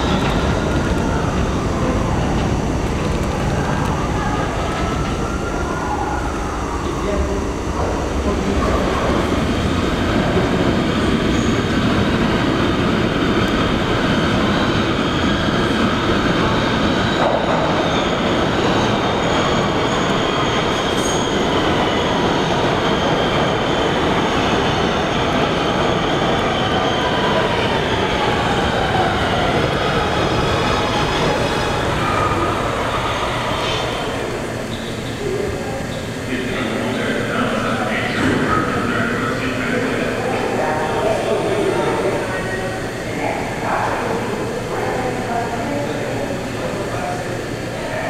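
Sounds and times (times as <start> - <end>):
train wheels rumbling on rails: 0.0 - 5.6.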